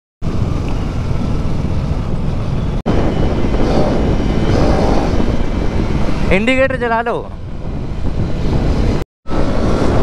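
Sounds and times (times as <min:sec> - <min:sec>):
motorcycle engine rumble: 0:00.2 - 0:06.3
wind rushing over microphone: 0:00.2 - 0:10.0.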